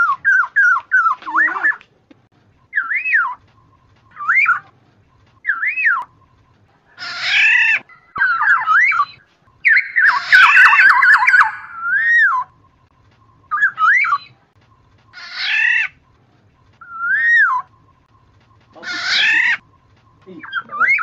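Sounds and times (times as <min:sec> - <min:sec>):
bird whistling song: 0:02.6 - 0:06.4, 0:07.4 - 0:14.4, 0:16.8 - 0:21.0
harsh buzzy bird call: 0:09.6 - 0:12.4.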